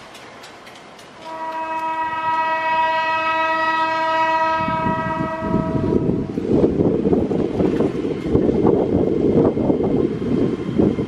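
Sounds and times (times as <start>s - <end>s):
train rumbling on rails: 0.0s - 11.0s
train horn: 1.2s - 6.4s.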